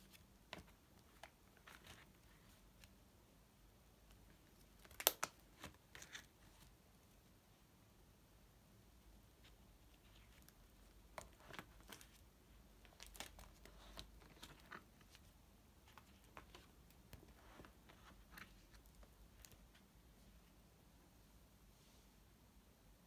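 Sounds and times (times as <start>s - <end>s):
plastic sleeve pages crinkling: 0.0s - 2.9s, 4.3s - 6.7s, 9.8s - 12.2s, 12.8s - 19.8s.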